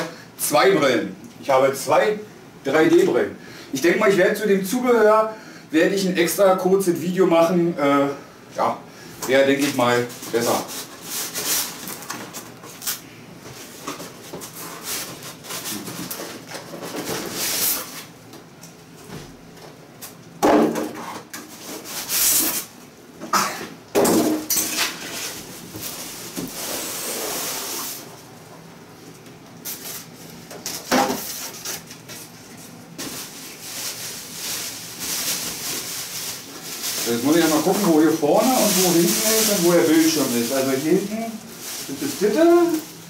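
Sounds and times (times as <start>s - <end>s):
foam scraping against cardboard: 26.5s - 28.0s.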